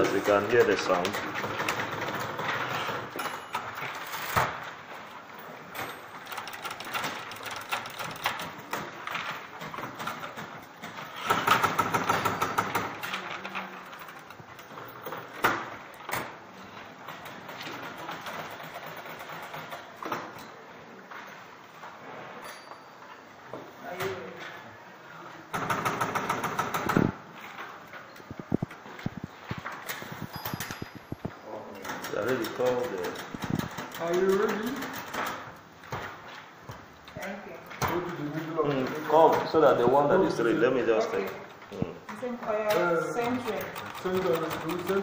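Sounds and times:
typewriters clicking and clattering: 0:00.0 - 0:20.4, 0:25.5 - 0:36.3, 0:43.0 - 0:45.0.

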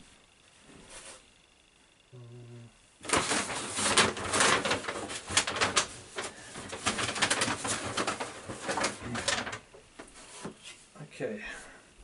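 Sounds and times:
packaging rustling and crinkling: 0:03.0 - 0:10.7.

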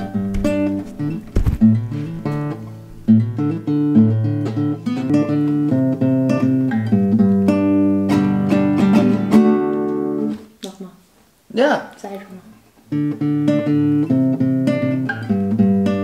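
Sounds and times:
handling noise bump: 0:00.0 - 0:03.1
acoustic guitar chords: 0:00.0 - 0:10.8, 0:12.9 - 0:16.0.

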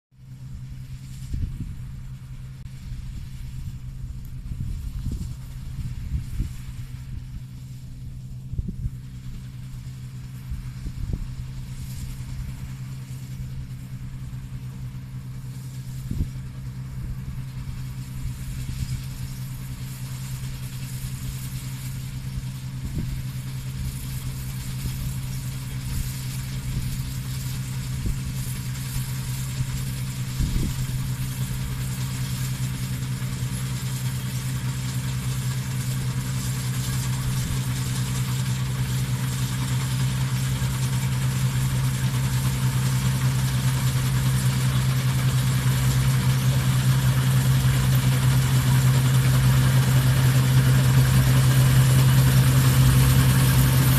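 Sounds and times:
combine harvester engine hum: 0:00.2 - 0:53.9
machinery whirring: 0:15.4 - 0:53.9.

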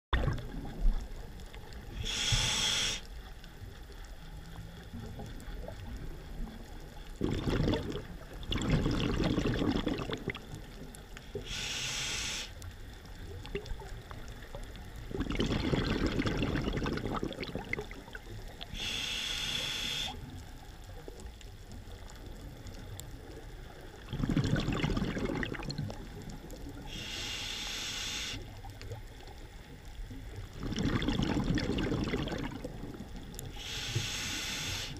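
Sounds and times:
exhaled bubbles rushing: 0:00.1 - 0:01.0, 0:07.2 - 0:10.5, 0:15.0 - 0:18.5, 0:24.0 - 0:26.8, 0:30.3 - 0:33.3
regulator hissing inhale: 0:01.9 - 0:03.2, 0:11.3 - 0:12.7, 0:18.6 - 0:20.3, 0:26.8 - 0:28.6, 0:33.5 - 0:34.9.

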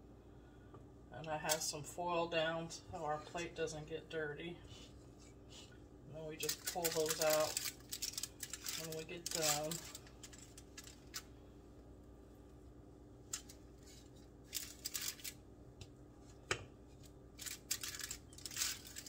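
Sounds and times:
cake pans and foil rustling: 0:06.2 - 0:11.4, 0:13.2 - 0:15.4, 0:16.2 - 0:19.0.

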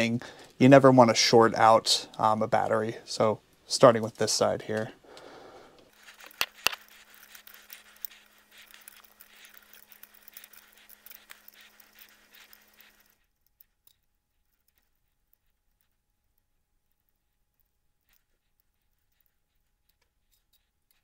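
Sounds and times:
metallic clicks and scrapes: 0:05.8 - 0:21.0.

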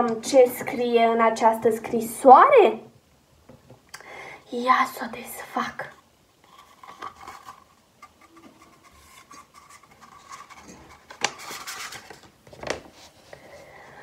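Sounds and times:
paper crinkling: 0:06.4 - 0:13.4
paper rustling: 0:06.4 - 0:13.6.

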